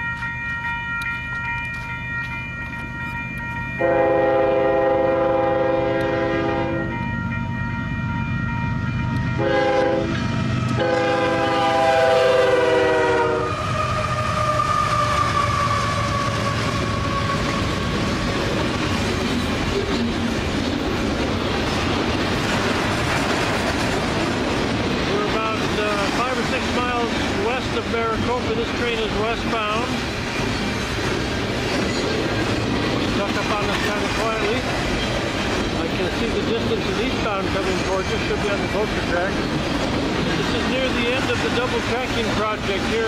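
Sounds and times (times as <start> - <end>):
crossing signal ringing: 0.0 - 18.6
train air horn blasts: 3.8 - 6.9, 9.4 - 17.9
freight cars rumbling and clattering: 16.4 - 43.0.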